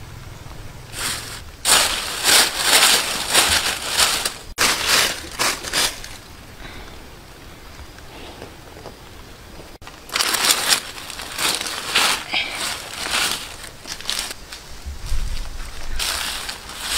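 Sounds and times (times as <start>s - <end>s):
dry leaves crackling and rustling: 0.9s - 6.4s, 9.8s - 16.9s.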